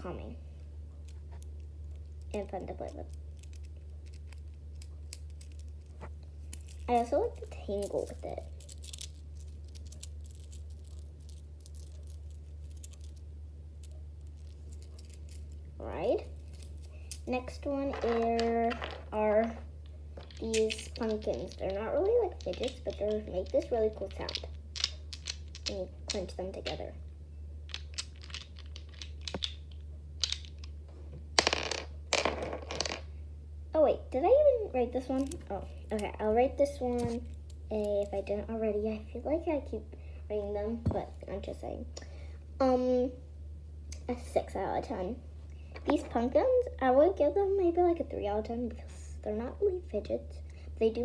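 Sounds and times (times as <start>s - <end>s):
steady low hum: 0.0s - 51.0s
beads clicking and rattling: 1.0s - 26.9s, 27.6s - 30.8s, 31.4s - 33.0s, 35.1s - 36.2s.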